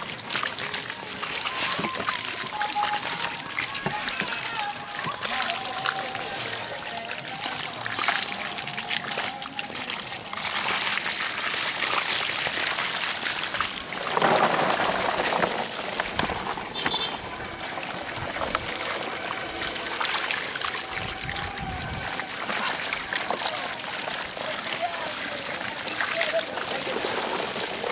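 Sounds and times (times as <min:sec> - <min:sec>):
fish flapping: 0:00.0 - 0:27.9
shallow water splashing: 0:00.0 - 0:27.9.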